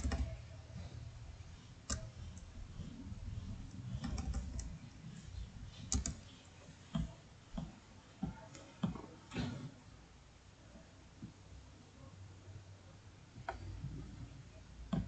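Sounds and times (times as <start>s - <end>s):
computer keyboard and mouse clicks: 0.0s - 0.4s, 1.8s - 2.5s, 3.7s - 4.8s, 5.9s - 6.2s.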